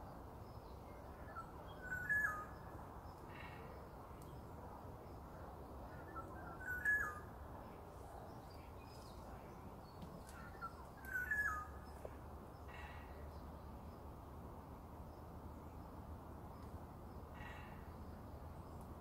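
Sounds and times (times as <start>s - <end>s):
quiet forest background: 0.0s - 19.0s
bird whistling song: 1.3s - 2.6s, 6.1s - 7.2s, 10.5s - 11.8s
faint bird call: 6.0s - 7.3s, 10.2s - 11.8s.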